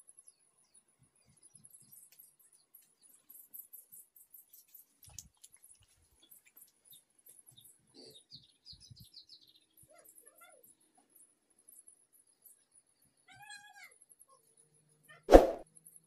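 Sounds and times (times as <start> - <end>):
faint bird chirps: 5.6 - 15.3.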